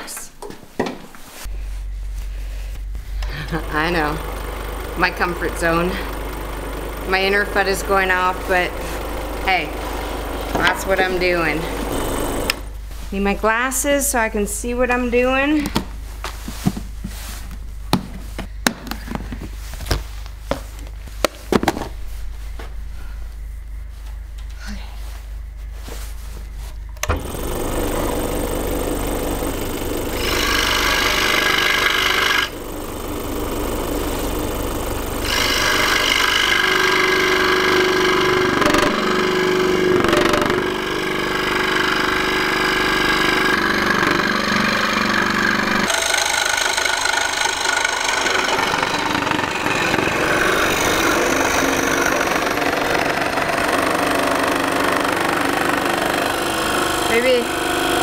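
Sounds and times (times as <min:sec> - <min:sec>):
scroll saw cutting wood: 0:03.2 - 0:12.7, 0:27.0 - 0:58.0.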